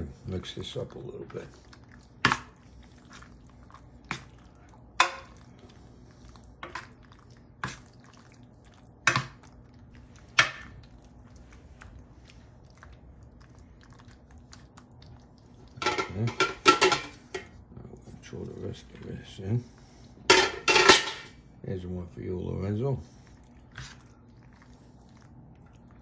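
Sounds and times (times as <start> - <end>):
spoon stirring pasta: 0.0 - 21.1, 22.4 - 26.0.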